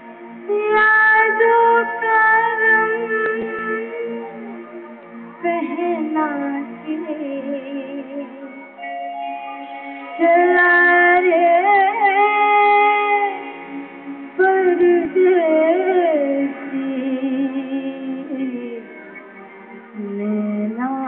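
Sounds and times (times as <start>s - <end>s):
musical accompaniment: 0.0s - 21.0s
woman singing long notes: 5.4s - 8.7s, 10.0s - 13.7s, 20.0s - 21.0s.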